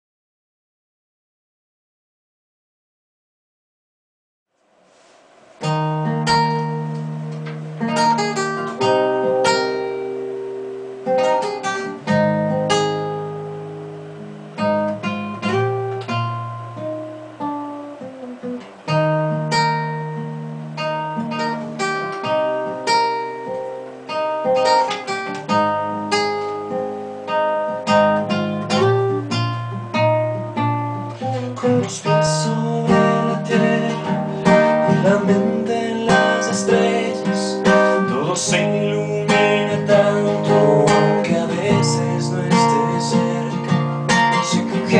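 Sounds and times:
acoustic guitar playing: 4.7 - 44.9.

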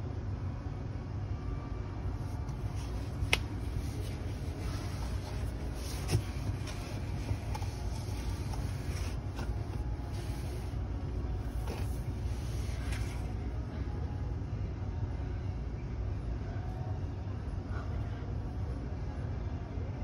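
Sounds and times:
steady low rumble: 0.0 - 20.0
person rubbing and shuffling: 2.0 - 13.6.

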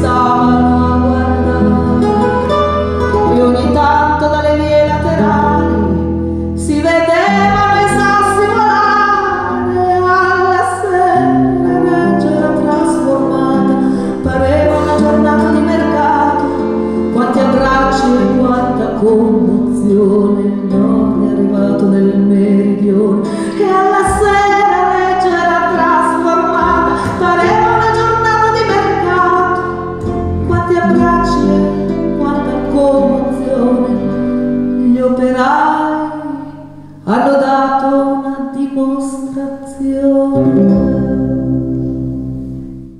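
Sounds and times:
double bass: 0.0 - 37.4, 40.0 - 42.9
woman singing folk song: 0.0 - 42.6
acoustic guitar: 0.0 - 42.9
accordion: 11.2 - 21.4.

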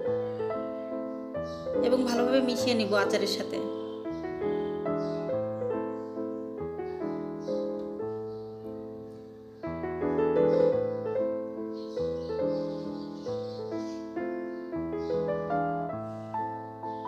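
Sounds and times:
gentle piano melody: 0.0 - 17.0.

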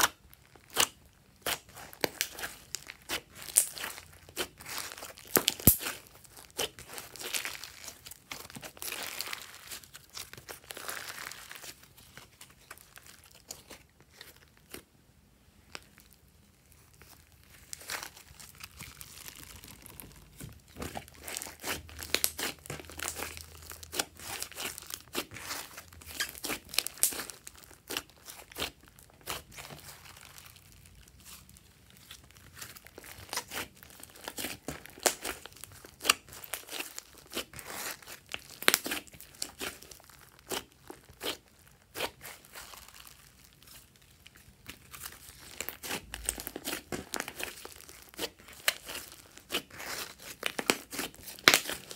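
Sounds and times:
slime crackling when squeezed: 0.0 - 14.8, 16.7 - 51.9.

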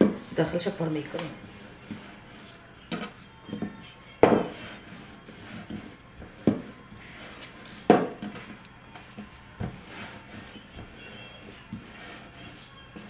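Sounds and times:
rolling pin knocking on board: 2.9 - 4.7, 5.7 - 6.7, 7.8 - 8.5.

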